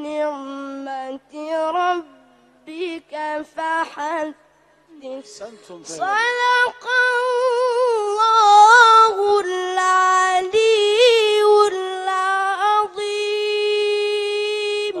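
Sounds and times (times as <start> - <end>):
boy chanting melodic recitation: 0.0 - 15.0.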